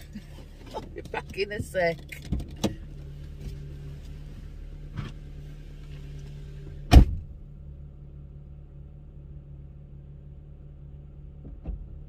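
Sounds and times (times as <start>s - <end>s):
car engine running: 0.0s - 12.0s
car door shutting hard: 6.7s - 7.4s.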